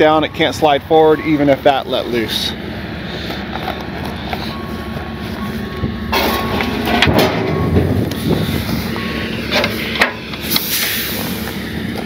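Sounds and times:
diesel truck engine running: 0.0 - 12.0
metal knocks: 6.1 - 8.2.

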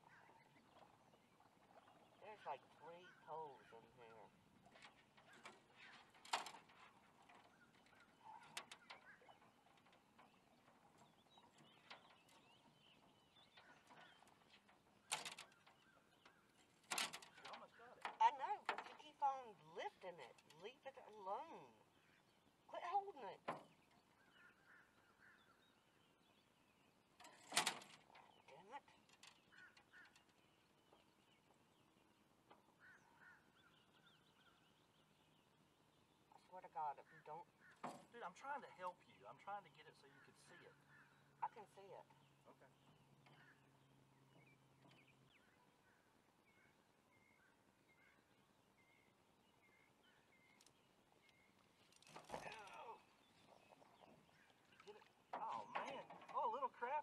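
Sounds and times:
faint bird chirps: 0.0 - 6.5, 39.8 - 57.0
distant bird calls: 0.0 - 57.0
faint bird chirping: 0.0 - 57.0.

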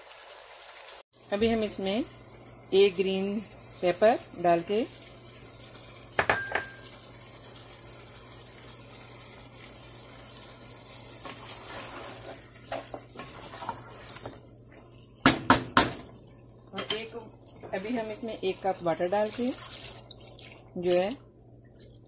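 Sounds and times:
curry hissing in a pan: 0.0 - 15.3
spatula scraping a pan: 11.2 - 14.3.

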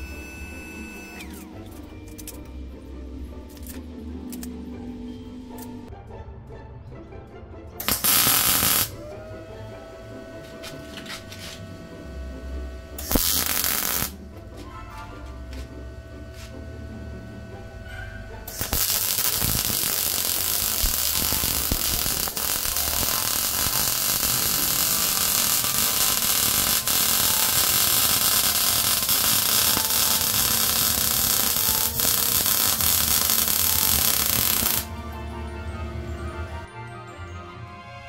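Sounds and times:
welding arc crackling hiss: 0.0 - 1.2, 7.8 - 9.0, 12.9 - 14.2, 18.5 - 34.9.

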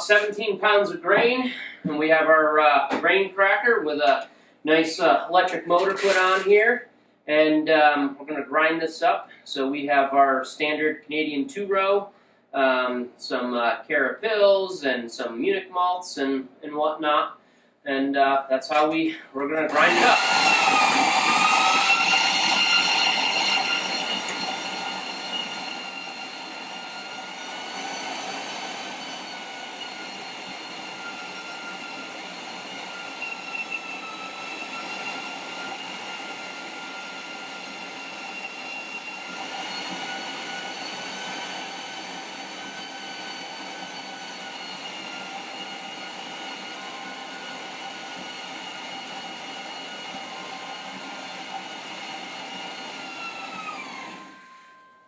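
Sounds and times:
grain mill motor whining: 5.8 - 6.5, 19.6 - 55.0.

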